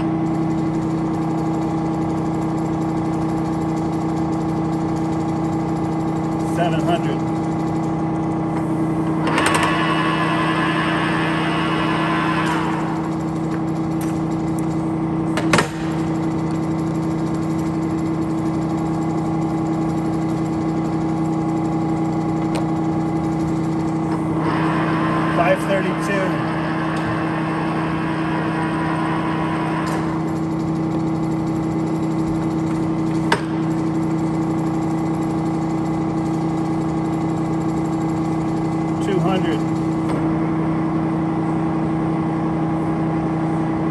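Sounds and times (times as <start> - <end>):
lathe gear noise: 0.0 - 40.8
lathe headstock humming: 0.0 - 41.2
lever clunk with falling whine: 8.6 - 10.4, 15.3 - 16.7, 22.4 - 22.8, 26.7 - 31.0, 32.6 - 34.0.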